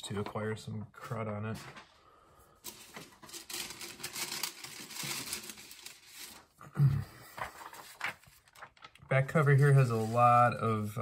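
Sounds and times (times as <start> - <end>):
paper rustling: 2.6 - 6.6, 7.2 - 11.0.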